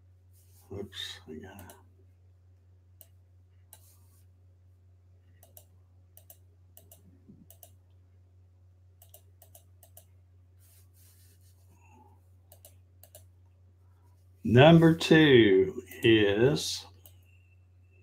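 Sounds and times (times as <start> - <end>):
steady low hum: 0.0 - 18.0
mouse and keyboard clicks: 5.4 - 7.8, 9.0 - 10.1, 12.5 - 13.3.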